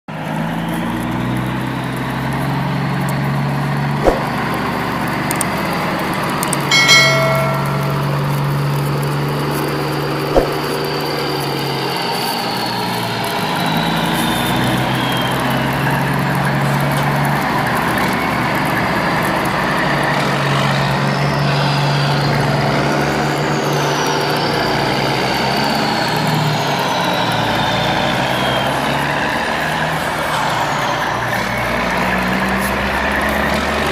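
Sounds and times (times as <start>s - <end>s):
truck engine running: 0.2s - 33.9s
short pitched tone: 6.7s - 8.8s, 10.4s - 10.7s.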